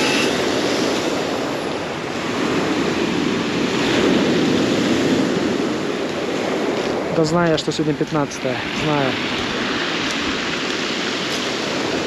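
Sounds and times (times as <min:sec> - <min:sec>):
surf on a pebble beach: 0:00.0 - 0:12.0.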